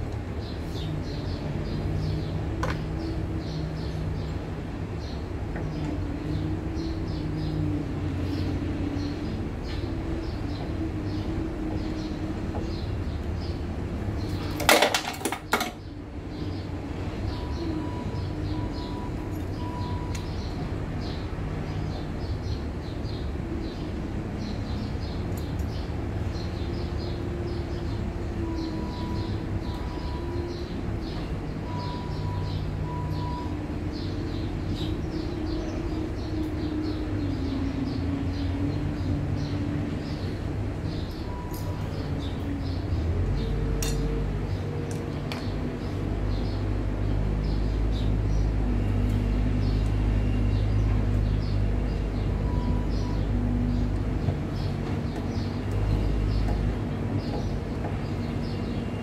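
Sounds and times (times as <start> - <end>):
low mechanical drone: 0.0 - 59.0
small birds chirping: 0.1 - 14.6, 15.3 - 59.0.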